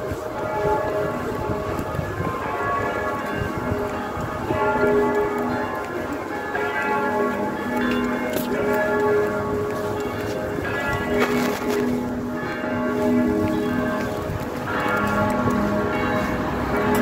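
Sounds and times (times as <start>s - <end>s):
church bells ringing: 0.0s - 17.0s
low street noise: 0.0s - 17.0s.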